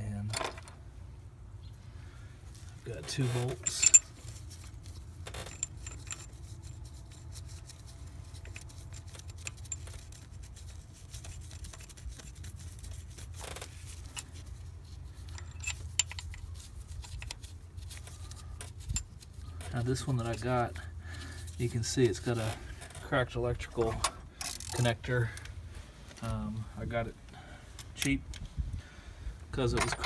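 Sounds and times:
small metallic clicks and clinks: 0:05.3 - 0:06.7, 0:15.2 - 0:20.9.

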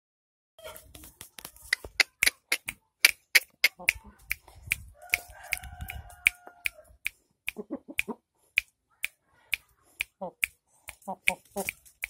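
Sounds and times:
fingers snapping: 0:01.4 - 0:07.6.

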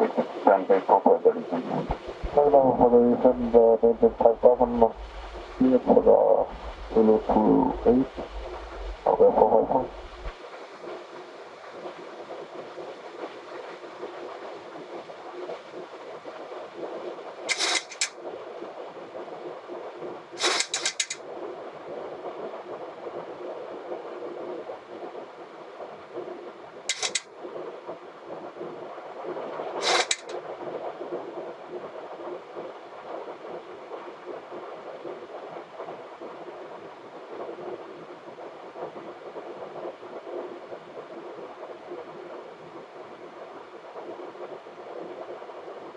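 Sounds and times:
sharp bursts of hiss: 0:17.5 - 0:18.1, 0:20.4 - 0:21.2, 0:26.9 - 0:27.2, 0:29.8 - 0:30.3.

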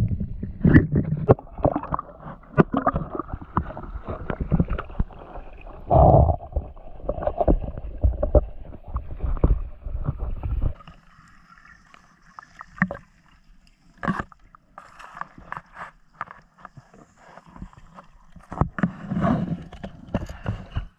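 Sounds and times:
muffled underwater sound: 0:00.0 - 0:10.8
underwater clicks and knocks: 0:00.0 - 0:11.0, 0:13.9 - 0:16.9, 0:17.7 - 0:20.9
water splashing and sloshing: 0:00.0 - 0:20.9.

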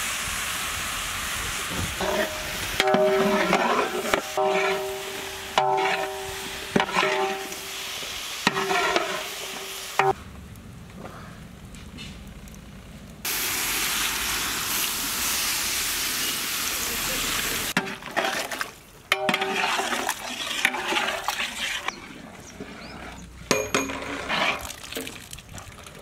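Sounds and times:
steady rushing hiss: 0:00.0 - 0:17.8
metal ladle scraping a pot: 0:01.9 - 0:10.2, 0:17.8 - 0:25.2.

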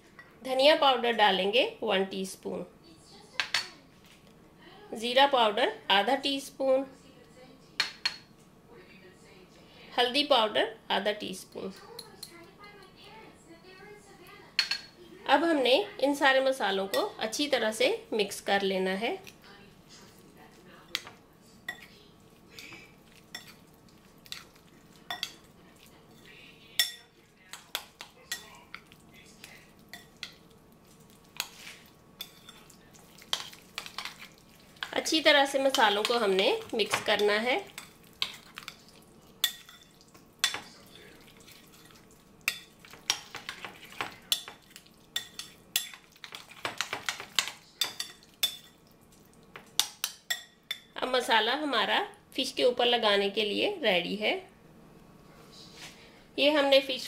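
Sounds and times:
spoon scraping and clinking glass bowl: 0:22.6 - 0:23.6, 0:31.4 - 0:34.9, 0:35.7 - 0:44.6
spoon clinking in glass bowl: 0:25.1 - 0:25.5, 0:26.8 - 0:28.5, 0:39.4 - 0:41.0, 0:45.2 - 0:48.8.

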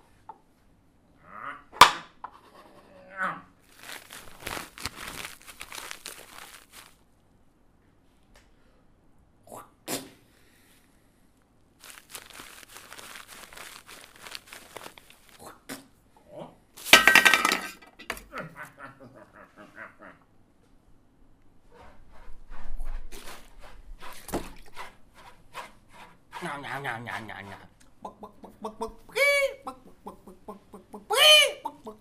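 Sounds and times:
rustling noise: 0:03.6 - 0:07.2, 0:11.8 - 0:15.4, 0:21.6 - 0:26.2.

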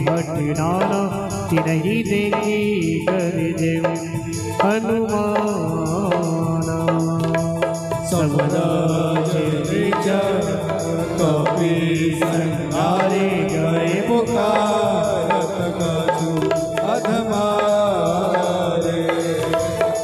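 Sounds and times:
keyboard chords: 0:00.0 - 0:20.0
tabla and dholak rhythm: 0:00.0 - 0:20.0.

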